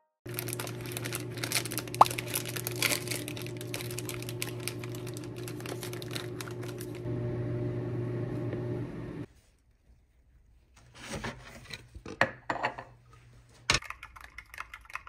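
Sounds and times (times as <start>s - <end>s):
plastic wrapper crinkling: 0.3s - 7.1s
steady low hum: 0.3s - 9.3s.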